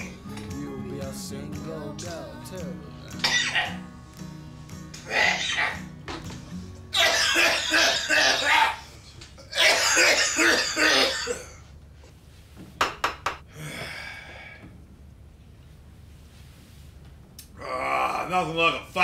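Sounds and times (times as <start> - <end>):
person coughing hard: 3.2 - 3.7, 7.0 - 8.8, 9.4 - 11.6.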